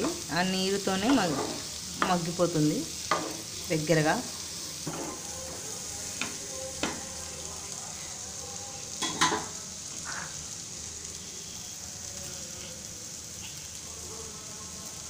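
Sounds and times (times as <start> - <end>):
cabbage sizzling in oil: 0.0 - 15.0
spatula scraping a pan: 1.0 - 1.8.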